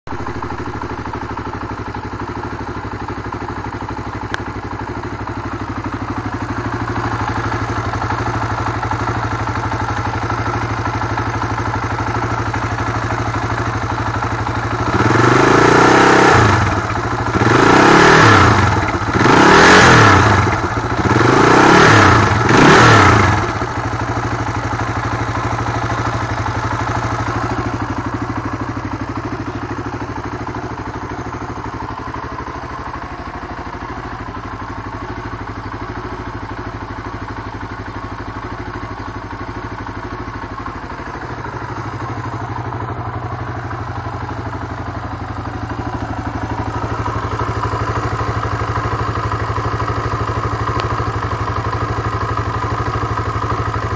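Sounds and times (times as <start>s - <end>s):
motorcycle engine idling: 0.1s - 53.9s.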